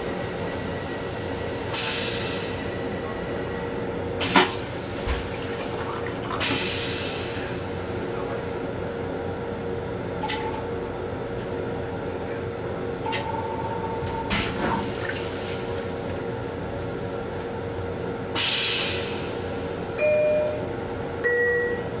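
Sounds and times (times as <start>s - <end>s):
train hum: 0.0s - 22.0s
toilet flushing water hissing: 4.2s - 7.4s, 14.3s - 16.1s.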